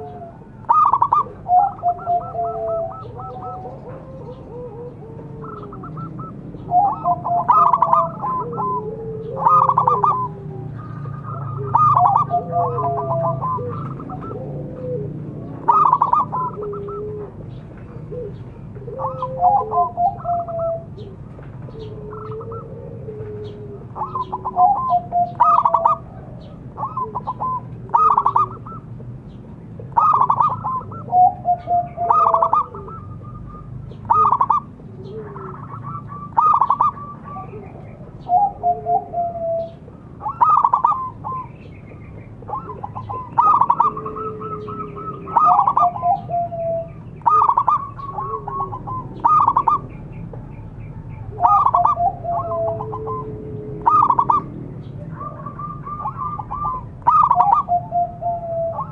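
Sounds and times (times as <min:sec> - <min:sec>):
dove cooing: 0:00.0 - 0:58.9.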